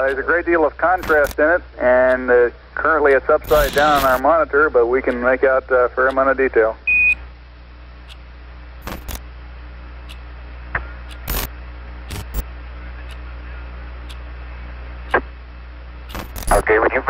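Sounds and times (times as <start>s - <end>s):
radio clicks and crackles: 0.0s - 1.4s, 3.1s - 4.3s, 8.8s - 9.2s, 10.1s - 11.5s, 12.1s - 13.4s, 15.1s - 15.4s, 16.1s - 17.0s
radio hiss and hum: 0.0s - 7.4s, 8.8s - 9.2s, 10.6s - 17.0s.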